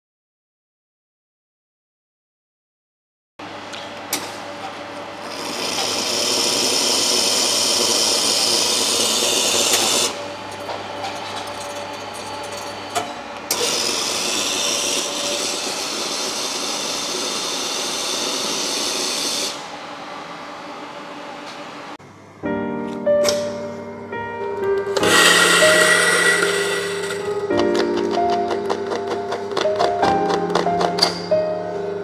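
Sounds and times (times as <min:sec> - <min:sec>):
steady machine hum: 0:03.4 - 0:22.7, 0:23.7 - 0:27.8
espresso machine steam hissing: 0:05.2 - 0:10.2, 0:13.5 - 0:19.8, 0:25.0 - 0:27.5.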